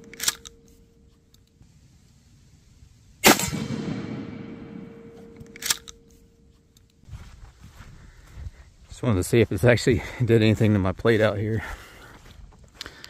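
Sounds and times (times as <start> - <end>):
shotgun boom with rolling echo: 3.2 - 5.5
sharp crack: 3.2 - 6.0.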